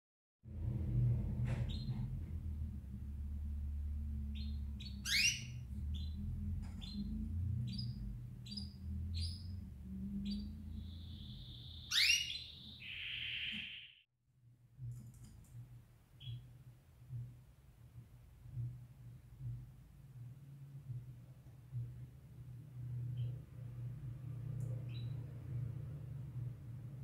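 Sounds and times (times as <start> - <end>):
canaries chirping: 1.7 - 2.0, 4.0 - 13.9, 23.1 - 23.4, 24.8 - 25.2.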